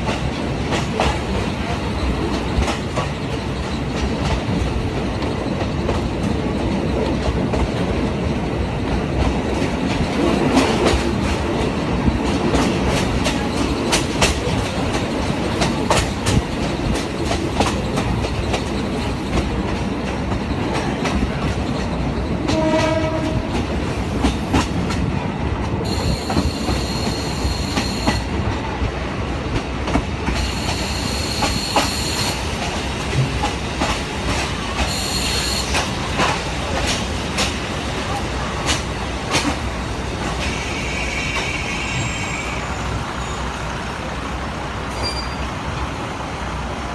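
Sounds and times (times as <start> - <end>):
train wheels clacking: 0.0 - 43.0
train horn: 22.4 - 23.6, 40.4 - 42.8.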